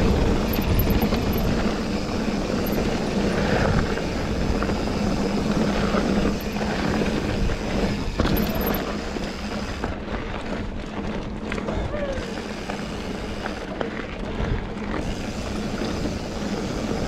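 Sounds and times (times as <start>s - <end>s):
bike tyres rolling: 0.0s - 17.0s.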